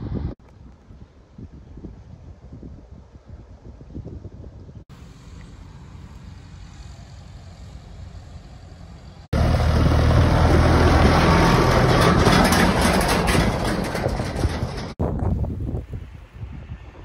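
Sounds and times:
low wind rumble: 0.0 - 17.0
tractor diesel engine: 4.9 - 15.0
trailer rattling: 7.2 - 15.2.

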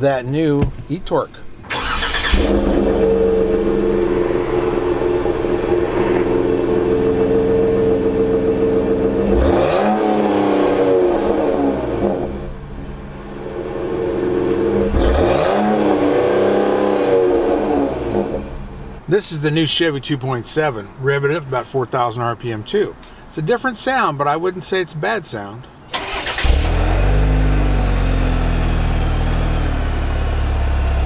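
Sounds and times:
truck engine revving: 1.7 - 19.0, 26.0 - 31.0.

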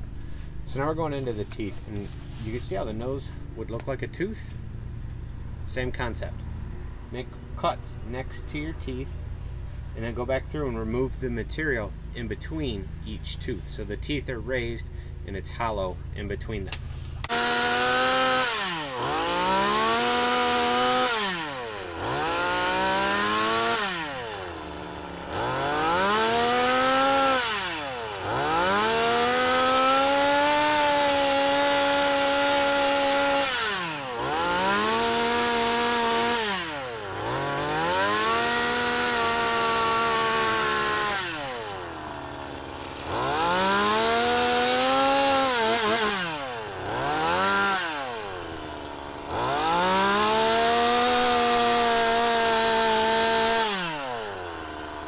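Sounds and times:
chainsaw revving and idling: 0.0 - 55.0
chainsaw cutting wood: 16.7 - 55.0.

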